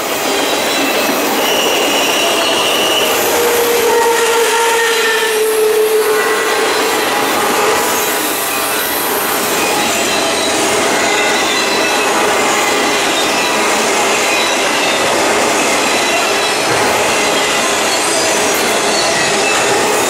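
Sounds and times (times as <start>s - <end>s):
freight cars rumbling on rails: 0.0s - 20.0s
wheel squeal: 0.1s - 20.0s.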